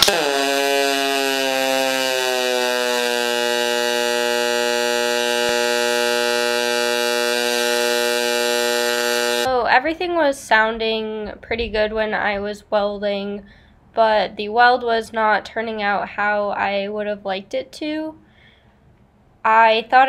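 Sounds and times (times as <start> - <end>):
welding arc buzz: 0.0 - 9.5.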